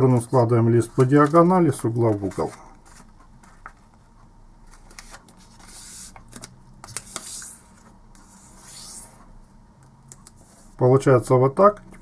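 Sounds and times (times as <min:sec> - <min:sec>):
paper rubbing swishes: 0:07.0 - 0:09.3.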